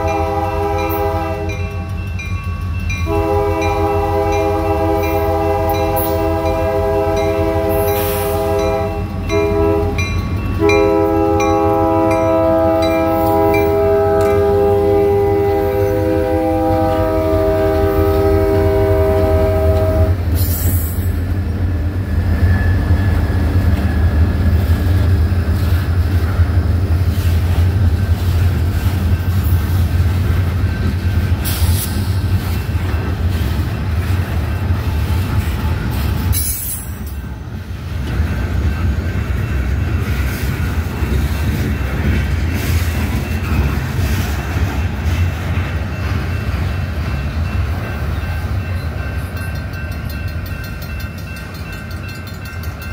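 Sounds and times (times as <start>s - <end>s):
train air horn: 0.0s - 1.8s, 3.0s - 21.0s
diesel locomotive engines rumbling: 0.0s - 52.9s
train wheels clattering on rails: 0.0s - 52.9s.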